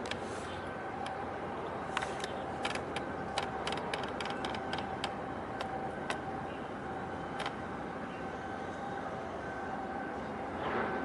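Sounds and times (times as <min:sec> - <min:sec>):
constant hum: 0:00.0 - 0:11.0
steady rumble: 0:00.0 - 0:11.0
sharp irregular clicks: 0:02.0 - 0:06.2, 0:07.4 - 0:07.6.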